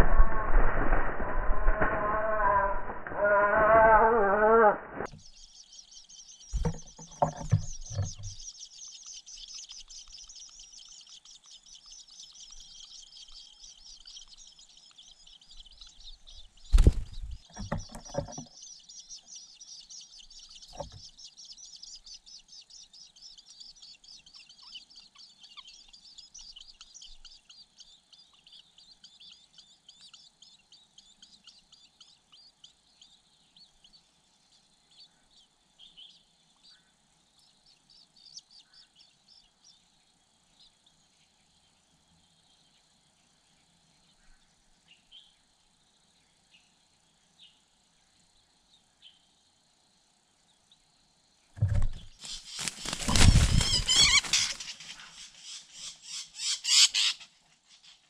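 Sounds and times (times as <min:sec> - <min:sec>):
wing flapping: 0:00.0 - 0:05.2, 0:16.6 - 0:18.5, 0:51.6 - 0:55.3
nestlings chirping: 0:01.8 - 0:41.0, 0:51.6 - 0:57.8.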